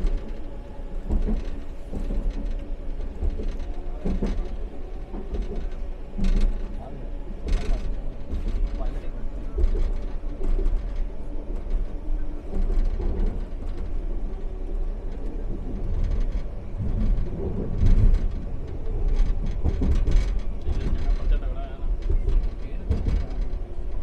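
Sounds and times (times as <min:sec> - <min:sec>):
train clattering: 0:00.0 - 0:24.0
train rumbling along track: 0:00.0 - 0:24.0.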